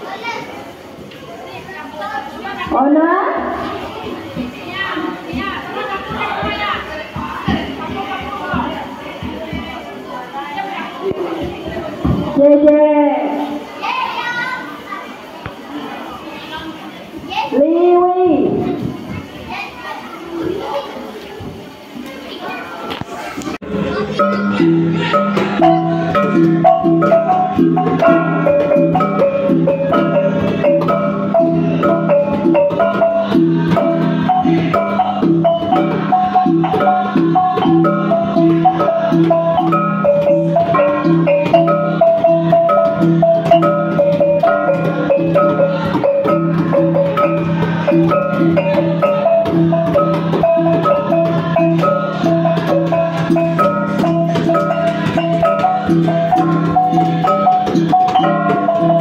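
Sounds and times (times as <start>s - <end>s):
mallets striking tuned gongs: 24.2s - 59.0s.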